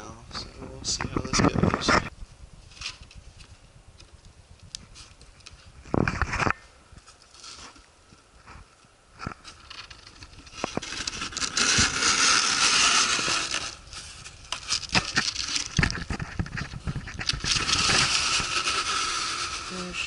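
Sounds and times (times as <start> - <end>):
cardboard flaps scraping: 9.3 - 20.0.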